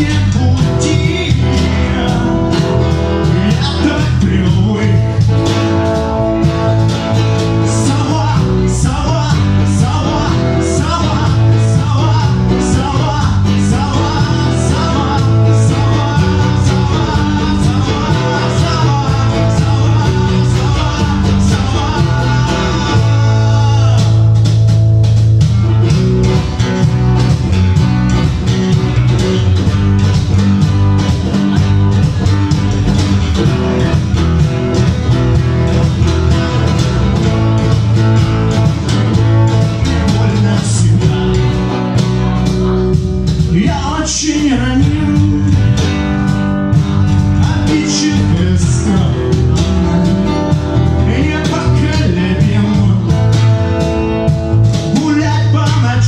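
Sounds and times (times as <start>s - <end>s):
person singing: 0.0s - 5.3s, 7.5s - 24.4s, 43.4s - 46.0s, 47.0s - 53.3s
bass guitar: 0.0s - 56.0s
electric guitar: 0.0s - 56.0s
percussion beat: 0.0s - 56.0s.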